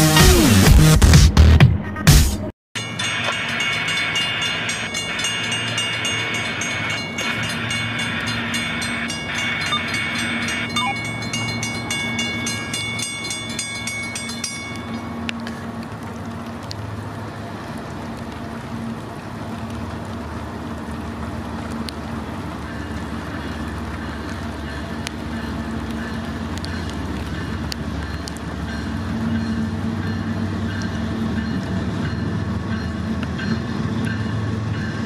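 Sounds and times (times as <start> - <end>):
crossing bell ringing rapidly: 2.8 - 15.3, 24.6 - 35.0.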